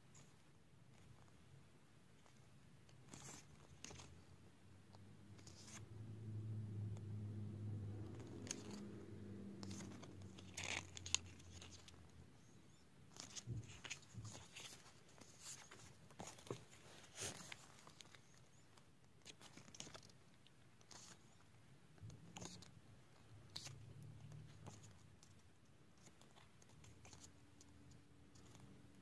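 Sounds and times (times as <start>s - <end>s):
pages turning: 2.2s - 4.2s, 5.3s - 5.8s, 8.0s - 20.2s, 20.8s - 21.5s, 22.2s - 25.4s, 26.0s - 27.3s.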